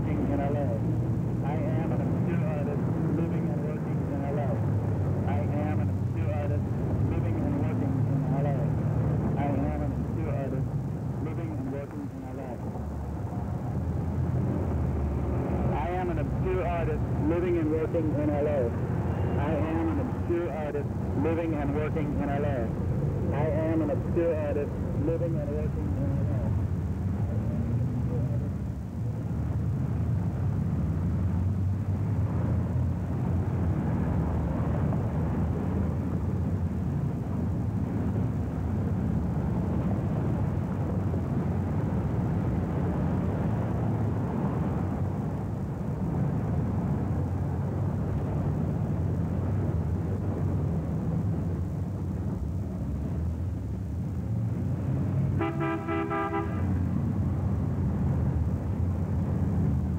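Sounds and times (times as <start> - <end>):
city traffic noise: 0.0 - 59.9
car horn honking: 55.4 - 56.8.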